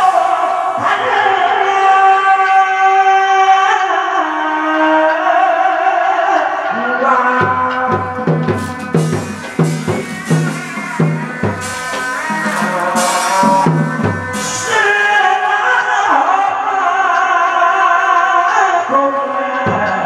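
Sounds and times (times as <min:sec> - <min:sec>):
steady drum beat: 0:07.4 - 0:15.2
percussion crashes: 0:07.8 - 0:15.4
held melodic line: 0:08.1 - 0:14.7.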